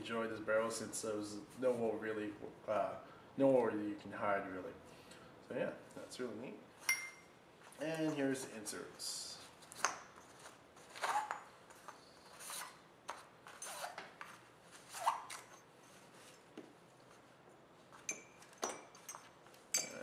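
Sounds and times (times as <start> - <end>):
fabric pouch rustling and scraping: 10.2 - 12.8, 13.4 - 16.5.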